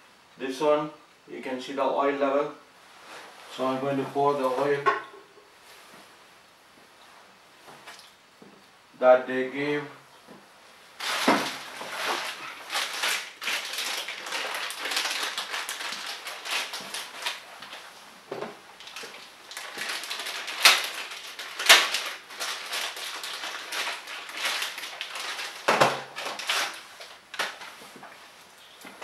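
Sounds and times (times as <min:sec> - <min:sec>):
plastic packaging crinkling: 0:11.0 - 0:18.0, 0:18.6 - 0:29.0.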